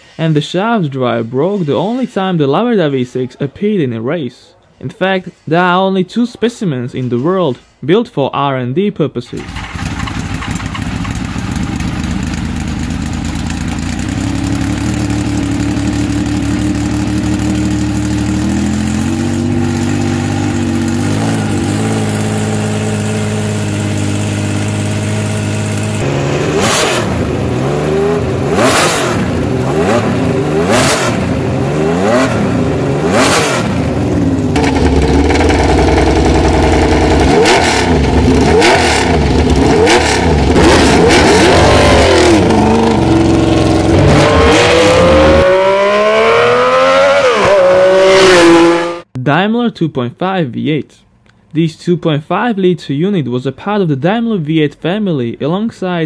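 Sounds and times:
sharp exhaust cracks: 9.3s - 46.0s
motorcycle engine idling and revving: 9.4s - 49.2s.

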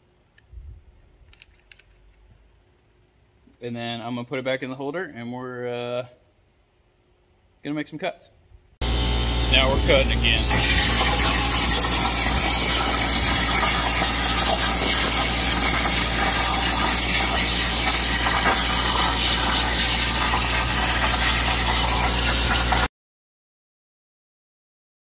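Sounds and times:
low hum: 8.8s - 22.8s
plasma torch hissing: 8.8s - 22.9s.

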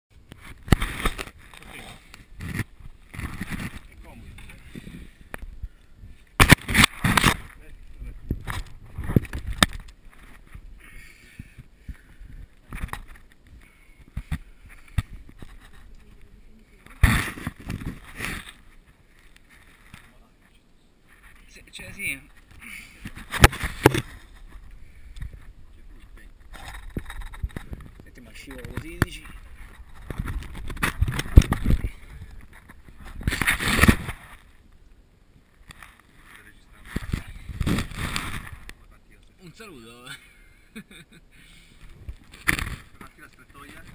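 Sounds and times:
rustling scrape on rock: 0.4s - 5.3s, 14.2s - 20.3s, 26.4s - 34.6s, 35.6s - 38.7s.

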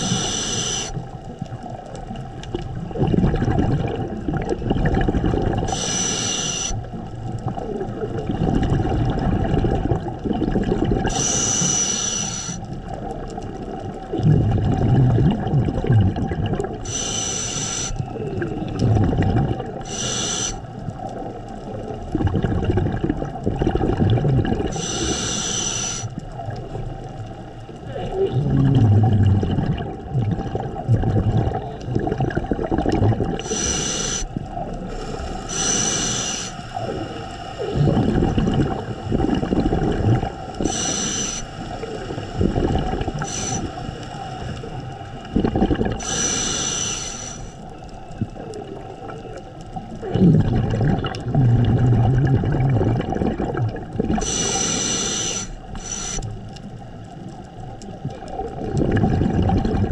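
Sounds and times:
regulator breathing hiss: 0.0s - 1.1s, 5.7s - 6.9s, 11.1s - 12.8s, 16.8s - 18.3s, 19.8s - 20.8s, 24.7s - 26.2s, 33.4s - 37.8s, 40.6s - 42.4s, 43.1s - 45.1s, 45.9s - 47.7s, 54.2s - 56.5s
exhaled bubbles burbling: 0.0s - 59.9s.

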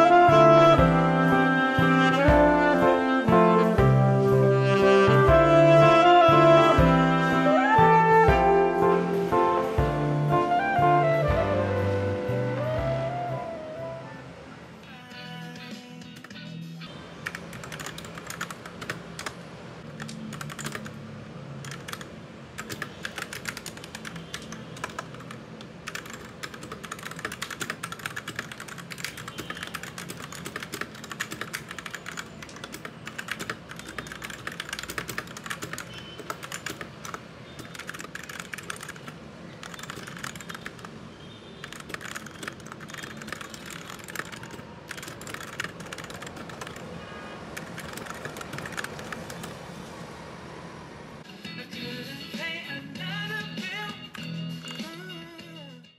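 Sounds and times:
mechanical keyboard typing: 17.2s - 21.0s, 21.6s - 41.0s, 41.6s - 46.9s, 47.6s - 49.6s.

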